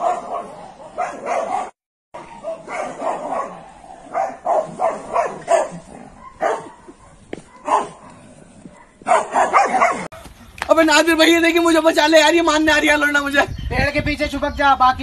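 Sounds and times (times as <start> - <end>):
dog barking: 0.0 - 10.3.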